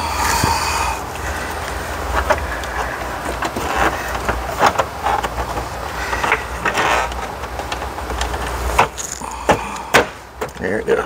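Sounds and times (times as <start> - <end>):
steady low hum: 0.0 - 11.0
plastic trim clicks and knocks: 2.2 - 10.6.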